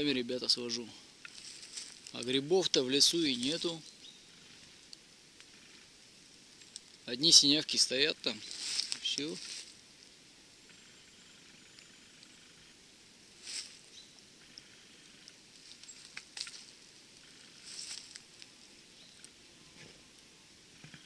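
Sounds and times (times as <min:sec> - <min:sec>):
footsteps rustling through leaves: 0:01.3 - 0:03.6, 0:07.4 - 0:09.8, 0:13.4 - 0:14.1, 0:15.5 - 0:16.9, 0:17.5 - 0:18.7
twigs snapping: 0:08.4 - 0:09.8, 0:15.6 - 0:16.8.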